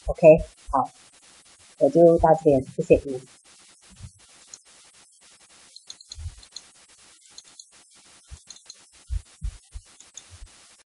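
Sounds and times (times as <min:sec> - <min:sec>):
soft low thumps: 0:06.1 - 0:06.4, 0:09.1 - 0:10.6
mouse clicks: 0:08.4 - 0:08.8, 0:10.0 - 0:10.4.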